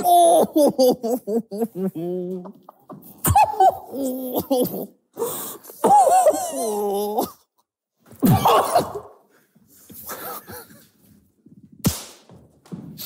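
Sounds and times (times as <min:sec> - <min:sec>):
men's stifled laughter: 0:00.0 - 0:05.0, 0:05.7 - 0:07.3, 0:10.0 - 0:11.0.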